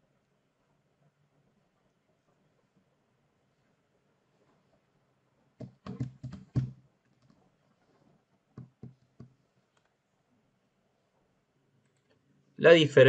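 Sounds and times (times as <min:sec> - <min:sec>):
computer keyboard and mouse clicks: 0:05.6 - 0:07.4.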